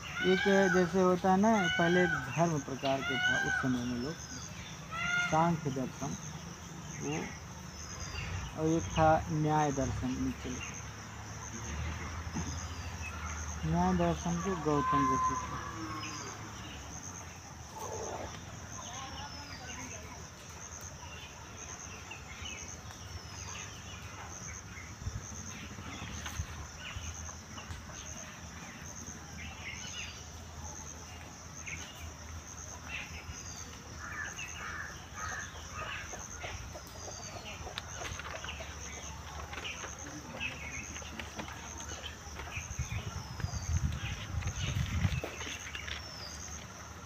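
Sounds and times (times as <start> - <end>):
pulsing high insect trill: 0.0 - 47.0
scattered bird calls: 0.0 - 47.0.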